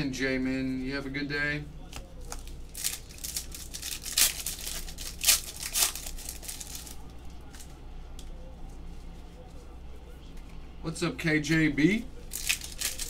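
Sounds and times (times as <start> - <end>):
wrapper tearing and crinkling: 2.2 - 7.0, 12.3 - 13.0.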